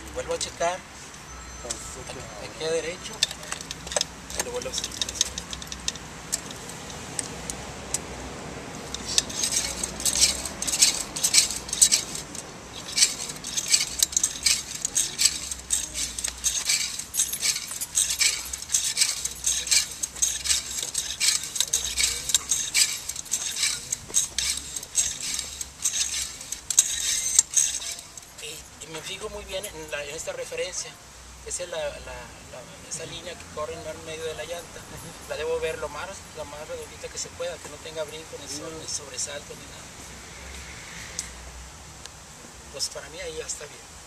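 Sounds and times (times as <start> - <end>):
bicycle parts clinking: 1.2 - 8.1, 8.8 - 30.4.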